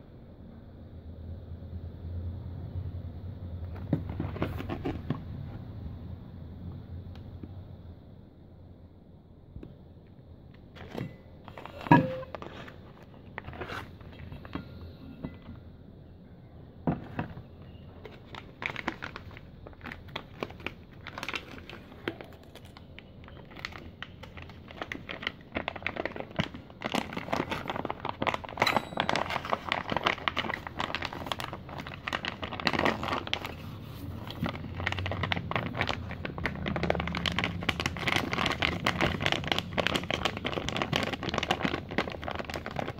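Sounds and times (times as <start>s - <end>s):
foil pouch crinkling: 18.0s - 42.9s.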